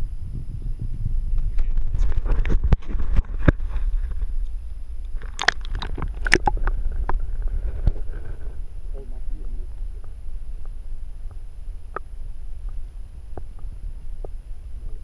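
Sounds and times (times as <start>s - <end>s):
wind rumble on microphone: 0.0s - 15.0s
water splashing and sloshing: 5.2s - 8.2s.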